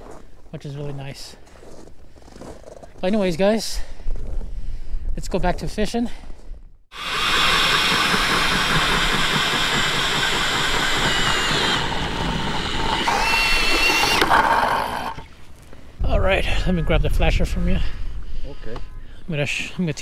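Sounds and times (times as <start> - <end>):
drill motor whine: 6.9 - 15.2
auger blades grinding ice: 7.0 - 15.3.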